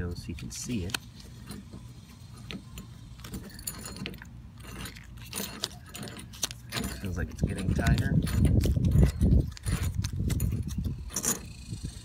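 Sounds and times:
low steady rumble: 0:00.0 - 0:12.0
metallic clicks and clinks: 0:02.3 - 0:11.6.

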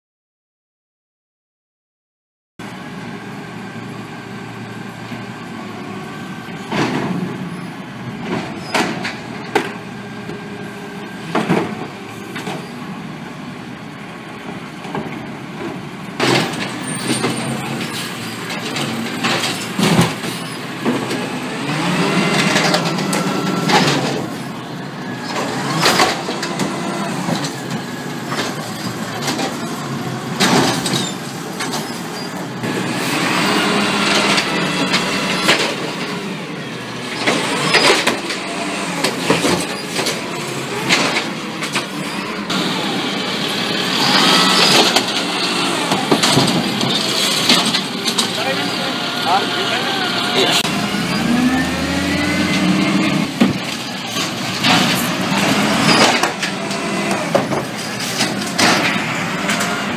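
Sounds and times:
garbage truck diesel engine: 0:02.6 - 0:59.9
cart and refuse banging: 0:14.9 - 0:24.6, 0:37.0 - 0:59.9.

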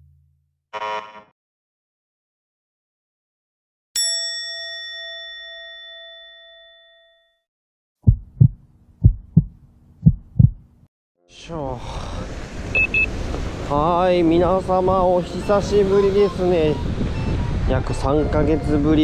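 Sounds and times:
bell-like ding: 0:04.0 - 0:07.4
heartbeat thuds: 0:08.0 - 0:10.7.

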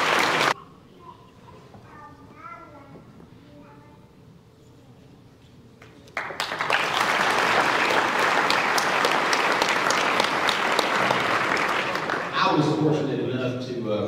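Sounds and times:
audience applauding: 0:00.0 - 0:00.6, 0:06.2 - 0:12.8.

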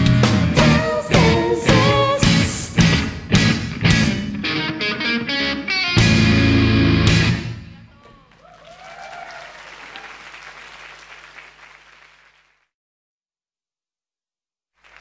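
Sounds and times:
rock band chord: 0:00.0 - 0:07.7
audience applause: 0:07.9 - 0:12.7, 0:14.8 - 0:15.0.

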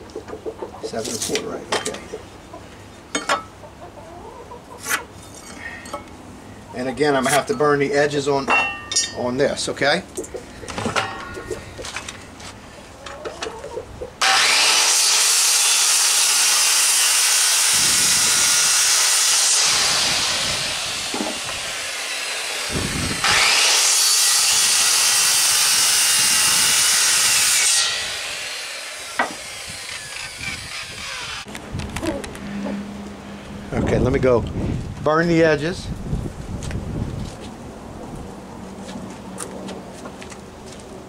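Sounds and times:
circular saw cutting wood: 0:14.2 - 0:31.6.

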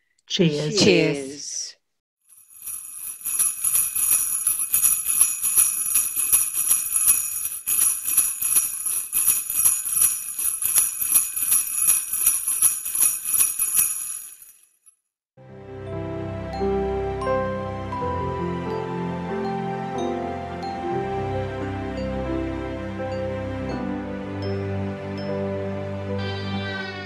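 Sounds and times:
sleigh bells jingling: 0:02.3 - 0:15.0.

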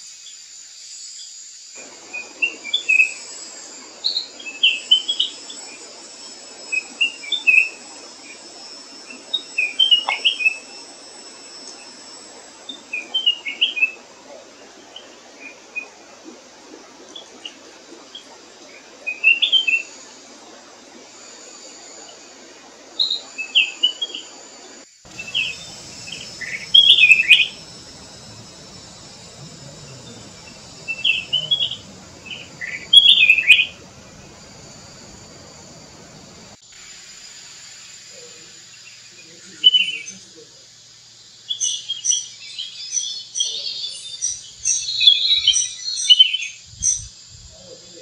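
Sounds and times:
insects hissing: 0:00.0 - 0:15.5, 0:18.4 - 0:43.2, 0:46.6 - 0:48.0
bird singing whistled phrases: 0:25.1 - 0:36.6.

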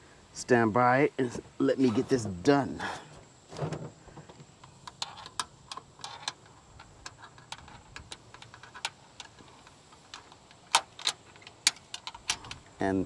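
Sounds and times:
metal bracket and screws clicking: 0:04.6 - 0:12.8.

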